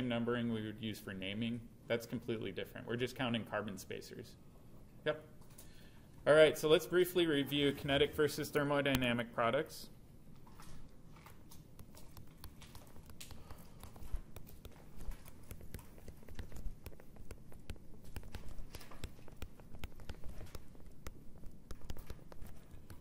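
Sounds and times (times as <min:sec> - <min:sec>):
stylus tapping and scratching on screen: 0:07.8 - 0:09.2, 0:10.3 - 0:23.0.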